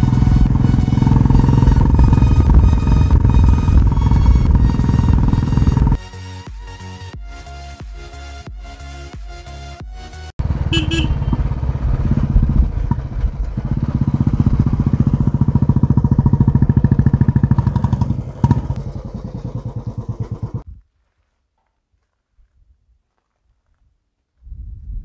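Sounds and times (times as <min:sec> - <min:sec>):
motorcycle engine running: 0:00.0 - 0:06.0, 0:10.4 - 0:20.7.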